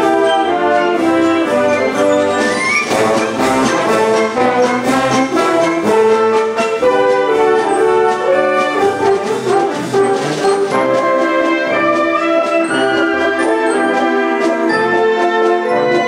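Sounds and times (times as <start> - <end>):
wind band playing a march: 0.0 - 16.0.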